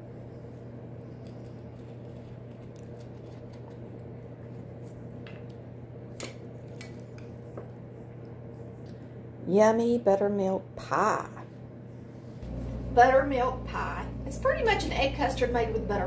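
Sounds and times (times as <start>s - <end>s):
low hum: 10.6s - 16.0s.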